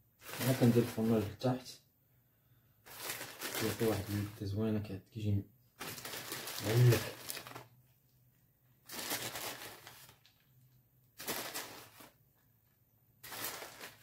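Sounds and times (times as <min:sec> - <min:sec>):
plastic bag rustling and crinkling: 0:00.1 - 0:01.5, 0:02.8 - 0:04.4, 0:05.8 - 0:07.8, 0:08.8 - 0:12.4, 0:13.2 - 0:14.0.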